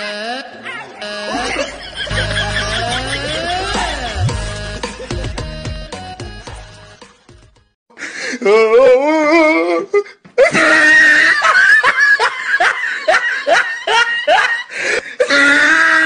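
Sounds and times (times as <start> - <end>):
loud laughter: 1.3 - 5.2, 10.4 - 14.7.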